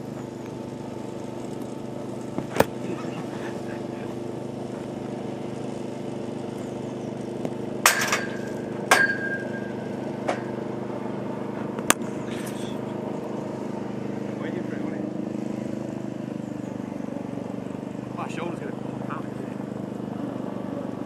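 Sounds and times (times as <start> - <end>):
motor running steadily: 0.0 - 21.0
sharp metallic knocks: 7.8 - 10.6.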